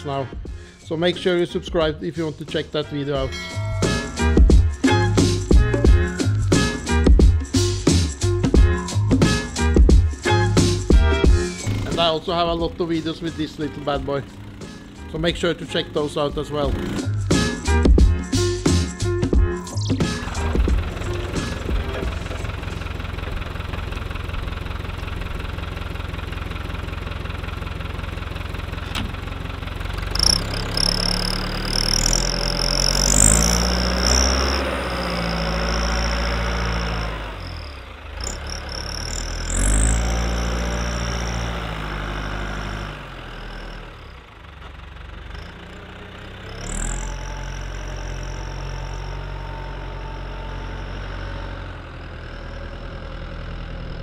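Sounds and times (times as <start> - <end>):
tractor diesel engine revving: 0.0 - 54.0
high engine whine: 10.7 - 18.5, 19.7 - 54.0.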